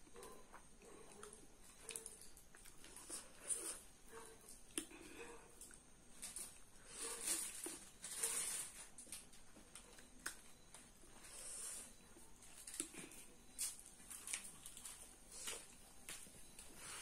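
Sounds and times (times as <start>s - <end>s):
chewing: 0.0s - 8.3s.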